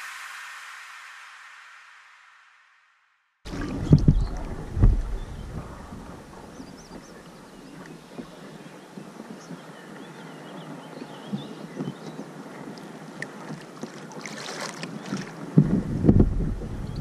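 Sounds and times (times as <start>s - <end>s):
water splash: 3.5s - 10.0s, 10.6s - 17.0s
wind buffeting microphone: 3.5s - 13.8s, 14.4s - 17.0s
water trickling and lapping: 3.5s - 17.0s.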